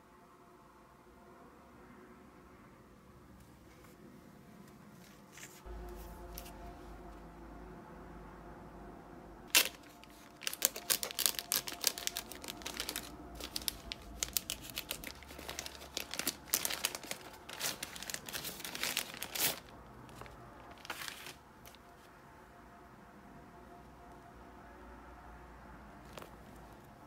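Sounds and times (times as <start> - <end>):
plastic mailer tearing and crinkling: 9.5 - 21.8.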